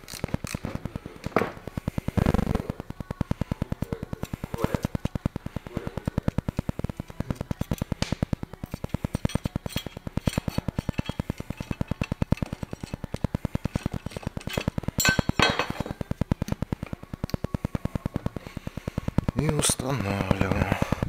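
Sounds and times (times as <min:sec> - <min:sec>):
metal parts clinking: 0:09.1 - 0:13.0, 0:13.7 - 0:15.9
rapid low thumping pulse: 0:16.0 - 0:21.0.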